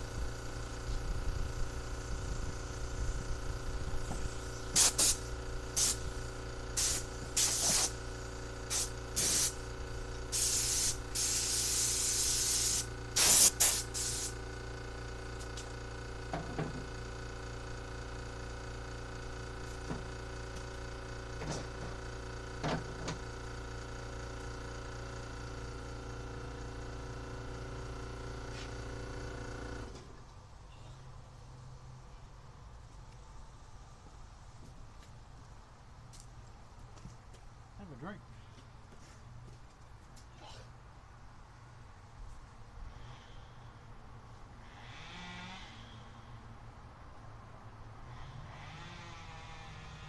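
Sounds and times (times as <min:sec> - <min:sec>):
air compressor humming: 0:00.0 - 0:30.2
air blow gun hissing blasts: 0:03.9 - 0:14.4.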